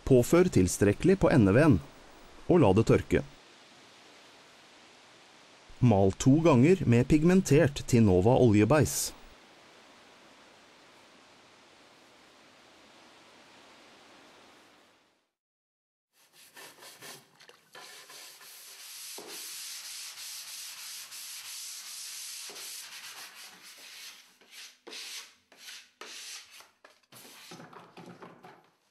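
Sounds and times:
scratchy rubbing on wood: 16.3s - 28.0s.

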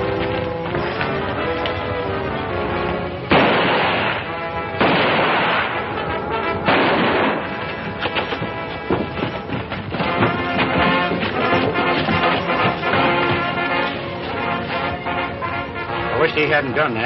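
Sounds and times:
orchestral film music: 0.0s - 17.0s
gunshots with ringing tail: 3.3s - 8.6s.

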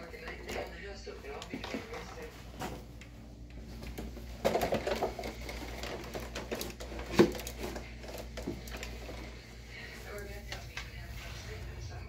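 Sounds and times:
faint low hum: 0.0s - 12.0s
objects knocking and clicking: 3.9s - 9.2s.

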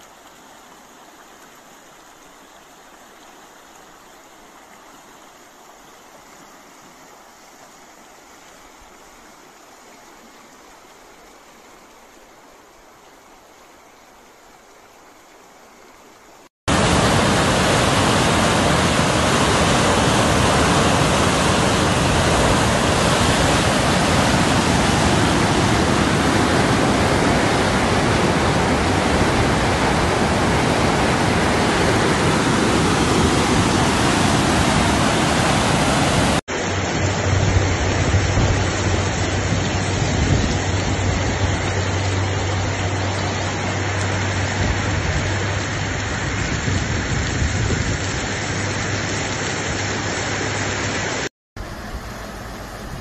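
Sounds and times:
heavy rain falling: 16.7s - 52.6s
floodwater roaring: 16.7s - 53.0s.

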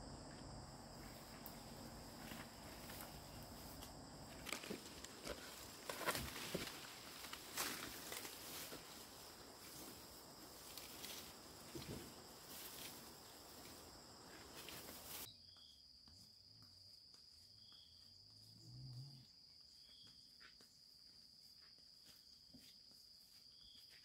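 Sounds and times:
high-pitched insect trill: 6.5s - 24.0s
soft rushing hiss: 6.8s - 15.3s.

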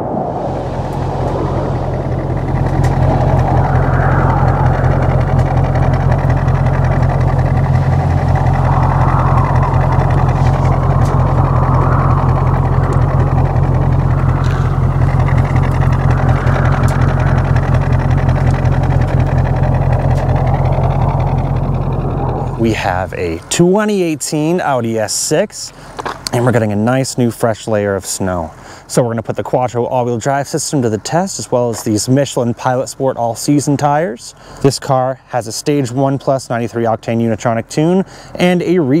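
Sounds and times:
car engine idling: 0.0s - 26.3s.

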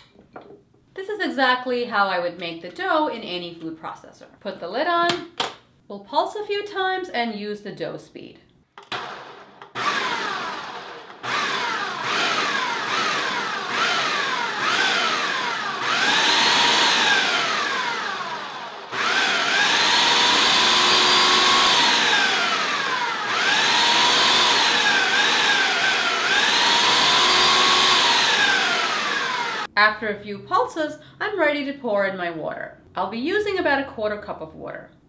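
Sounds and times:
food processor motor whine: 8.8s - 29.7s.

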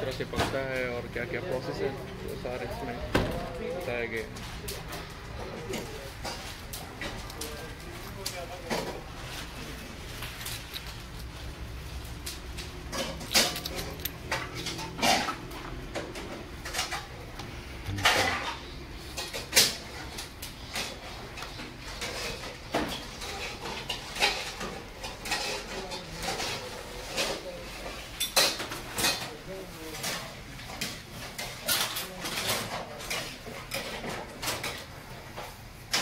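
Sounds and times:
steady low hum: 10.4s - 21.4s
faint voices: 13.4s - 22.5s.

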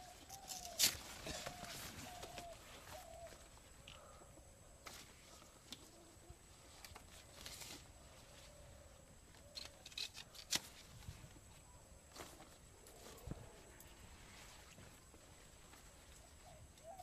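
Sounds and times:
sickle snapping stalks: 0.0s - 2.6s, 9.4s - 10.9s
leaves rustling: 0.0s - 3.8s, 4.8s - 17.0s.

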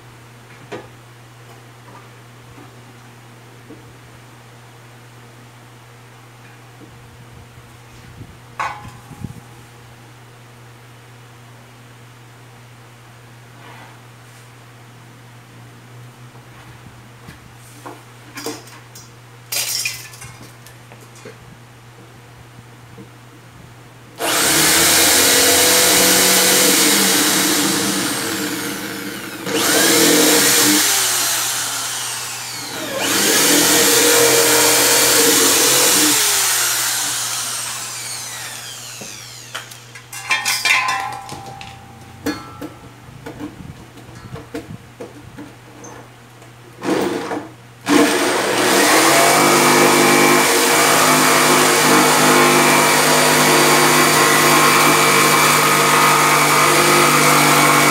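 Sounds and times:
jigsaw cutting: 24.2s - 39.9s, 47.9s - 57.9s
electric drill boring wood: 24.2s - 40.0s, 47.9s - 57.9s
knocks and clatter: 40.1s - 45.6s.

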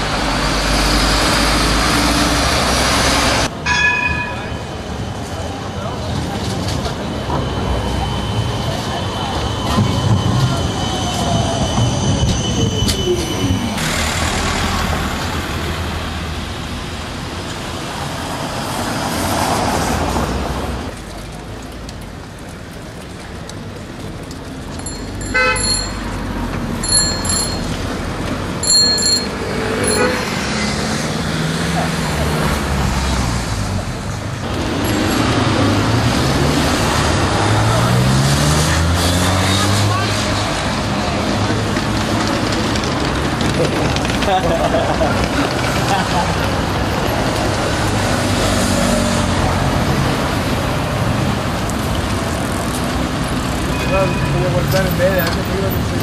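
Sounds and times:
bus engine passing: 0.0s - 3.7s, 13.5s - 53.7s
street traffic rumble: 0.0s - 56.0s
bicycle bells ringing: 24.7s - 30.6s, 34.8s - 35.8s
horn tooting: 25.2s - 26.0s, 28.6s - 30.5s.

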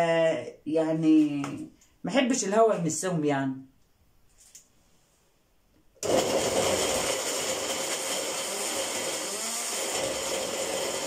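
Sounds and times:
blender running: 6.0s - 11.0s.

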